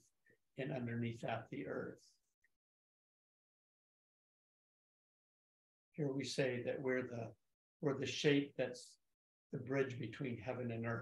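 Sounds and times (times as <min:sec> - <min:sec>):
man talking: 0:00.6 - 0:02.0, 0:06.0 - 0:09.0, 0:09.6 - 0:11.0.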